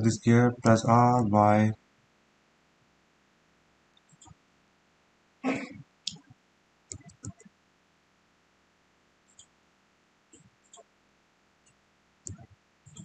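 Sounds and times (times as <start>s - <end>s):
mouse and keyboard clicks: 6.9s - 7.5s, 12.3s - 13.0s.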